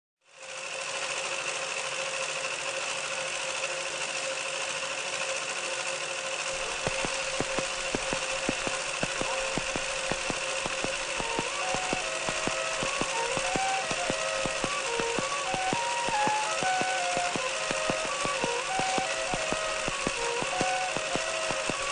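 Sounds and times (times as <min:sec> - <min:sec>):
machine hum with high whine: 0:05.8 - 0:21.9
regular ticking clicks: 0:06.6 - 0:21.9
short notes stepping up and down: 0:06.6 - 0:21.9.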